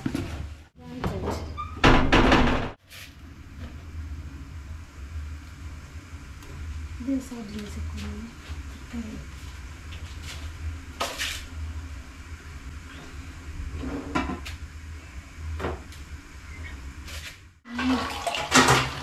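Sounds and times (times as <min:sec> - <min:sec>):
steady low hum: 0:02.8 - 0:17.7.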